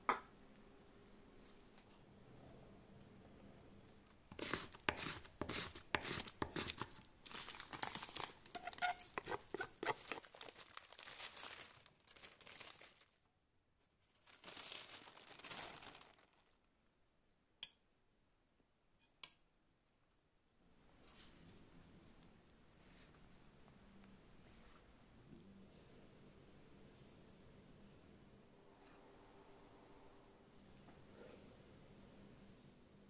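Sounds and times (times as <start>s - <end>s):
knife scraping chocolate: 4.3s - 7.0s, 7.8s - 10.3s
baking paper rustling: 4.4s - 13.2s, 14.0s - 16.7s.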